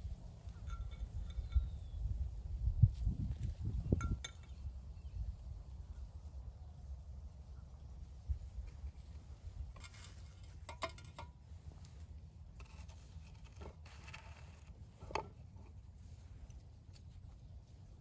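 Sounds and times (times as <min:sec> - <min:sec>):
bread scraping and rustling: 0:09.7 - 0:17.4.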